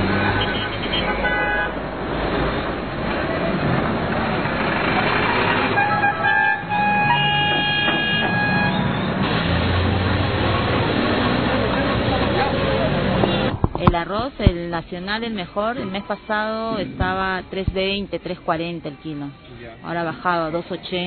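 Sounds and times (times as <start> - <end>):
car horns honking: 0.0 - 1.8, 5.2 - 9.5, 13.0 - 13.6, 15.5 - 17.4
busy street traffic: 0.0 - 21.0.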